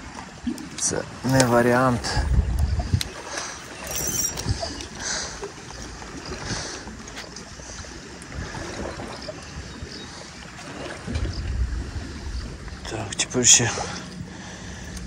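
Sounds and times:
wind noise: 0:02.0 - 0:05.2, 0:10.8 - 0:12.9
fishing tackle rustling and clicking: 0:02.6 - 0:06.2.

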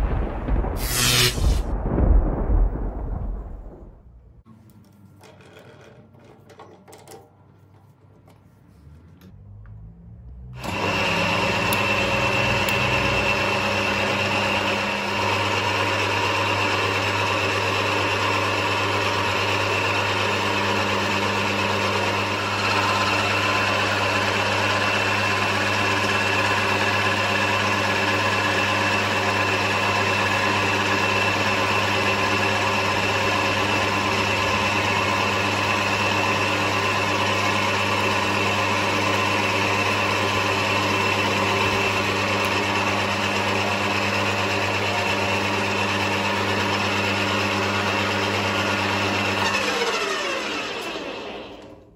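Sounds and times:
metal lathe humming: 0:10.6 - 0:17.2, 0:18.3 - 0:51.8.

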